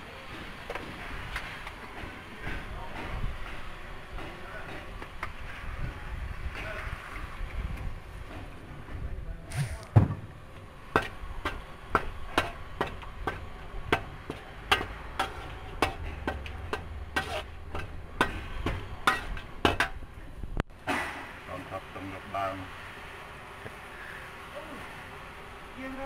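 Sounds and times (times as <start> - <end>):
metal spatula clanking on wok: 14.3 - 20.0.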